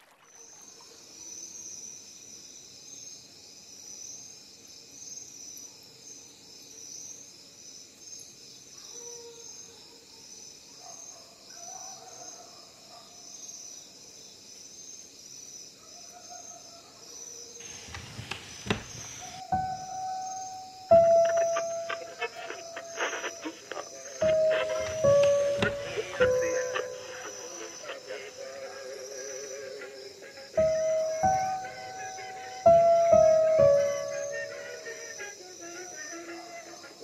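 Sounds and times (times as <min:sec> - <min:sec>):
crickets trilling: 0:00.0 - 0:37.0
faint low calls: 0:17.6 - 0:35.2.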